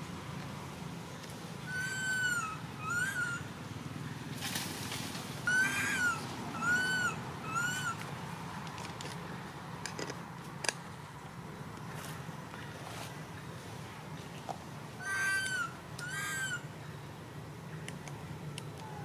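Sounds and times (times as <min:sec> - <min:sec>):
monkey coo calls: 0:01.7 - 0:03.5, 0:05.4 - 0:08.0, 0:15.0 - 0:16.7.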